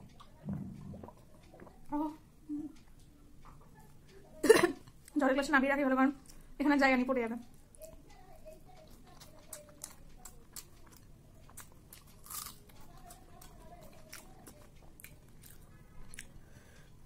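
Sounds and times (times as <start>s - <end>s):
person chewing food: 0.0s - 2.2s, 7.5s - 17.0s.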